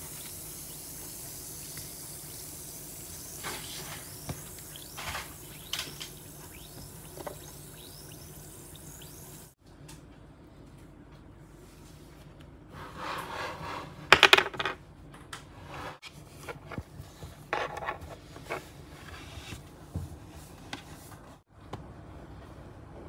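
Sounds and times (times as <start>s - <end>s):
objects clattering on tabletop: 14.1s - 14.8s.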